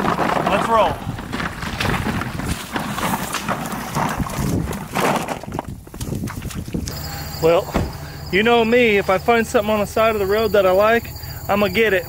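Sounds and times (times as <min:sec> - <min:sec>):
footsteps wading through muddy water: 0:01.0 - 0:07.0.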